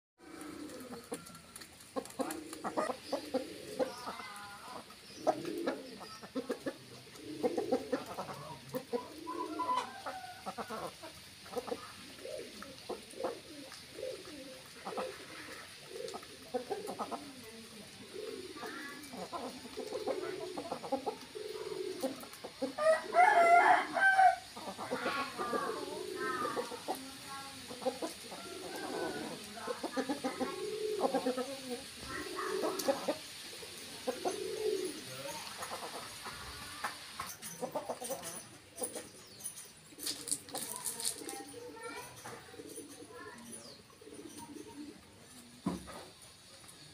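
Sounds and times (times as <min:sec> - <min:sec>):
chickens clucking: 0:00.2 - 0:46.9
loud high chicken call: 0:22.8 - 0:24.4.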